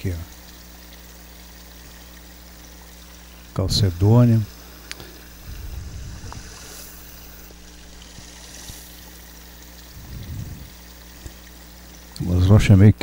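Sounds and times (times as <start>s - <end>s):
water trickling over stones: 0.0s - 13.0s
low rumbles: 5.3s - 8.4s, 9.8s - 11.0s.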